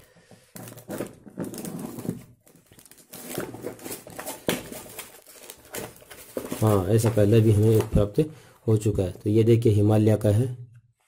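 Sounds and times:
packaging crinkling and scraping: 0.0s - 8.2s.

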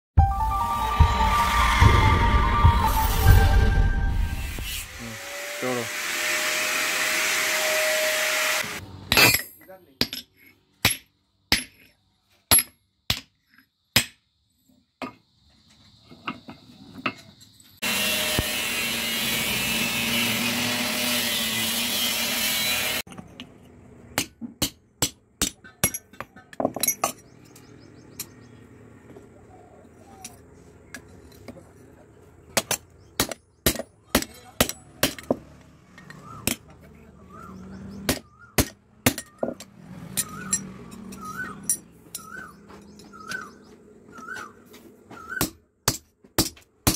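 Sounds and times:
hammer striking steel on anvil: 32.6s - 35.4s.

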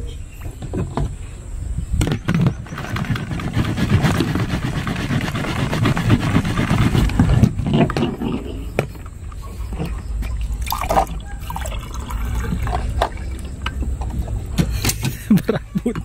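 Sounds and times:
soda fizzing with low rumble: 10.4s - 13.6s.

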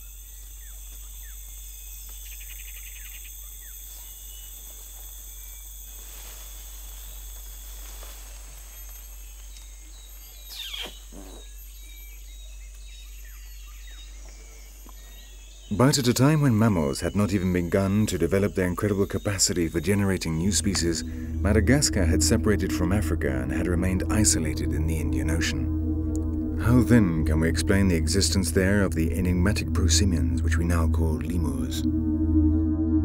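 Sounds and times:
bird chirps: 0.0s - 4.7s, 8.0s - 21.7s
rapid buzzing trill: 0.0s - 32.5s
insects droning: 0.0s - 33.0s.

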